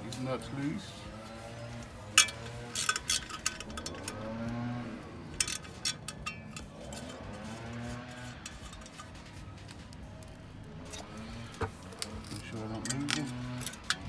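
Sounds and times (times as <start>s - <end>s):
socket wrench clicking: 5.4s - 7.1s.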